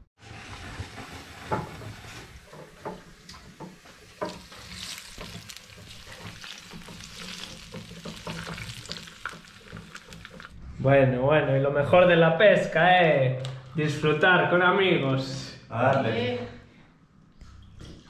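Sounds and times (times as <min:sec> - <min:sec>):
fish sizzling over embers: 0:01.0 - 0:10.6.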